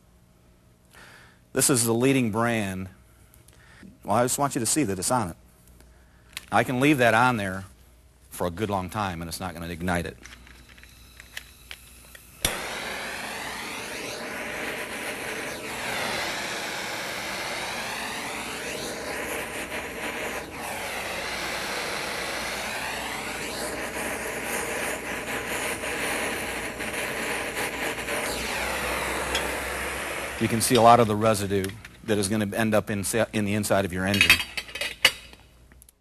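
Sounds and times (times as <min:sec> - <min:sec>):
fuel burning in a pot: 0:10.5 - 0:31.6
blowtorch flame hissing: 0:10.9 - 0:31.6.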